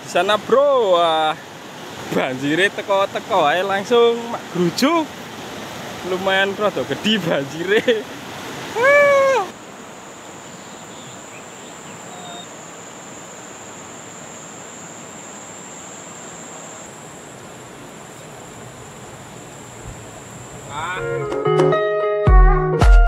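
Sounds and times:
flood water rushing: 0:00.0 - 0:21.4
loud call rising and falling: 0:08.7 - 0:09.6
faint high whine: 0:08.7 - 0:21.3.

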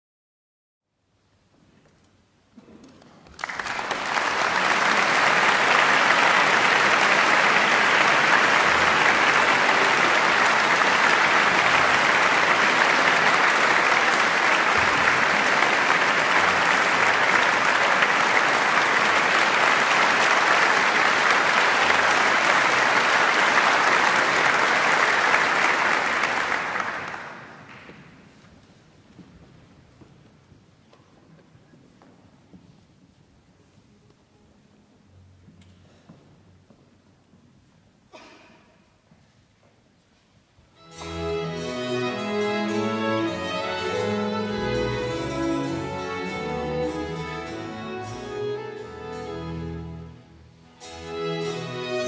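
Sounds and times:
audience applauding: 0:03.0 - 0:28.2, 0:40.9 - 0:48.8.

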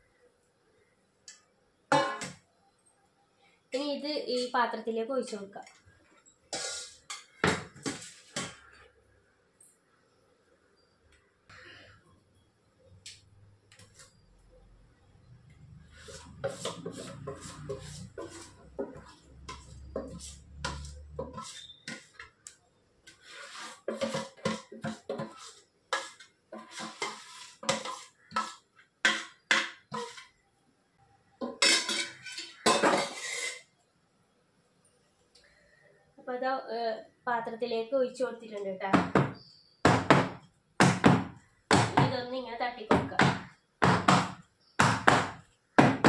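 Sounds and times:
metal spoon scraping steel bowl: 0:15.9 - 0:22.3, 0:23.1 - 0:30.3, 0:31.6 - 0:33.7.

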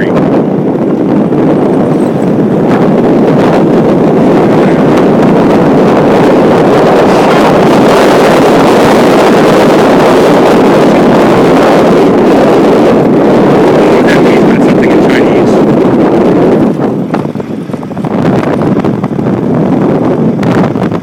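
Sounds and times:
road noise: 0:00.0 - 0:21.0
wind rush on microphone: 0:00.0 - 0:21.0.

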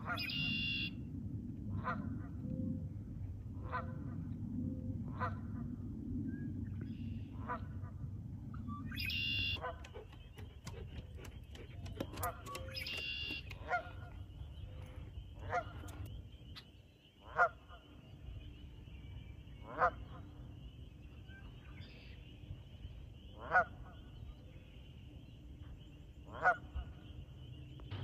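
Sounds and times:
geese honking: 0:23.4 - 0:23.8.

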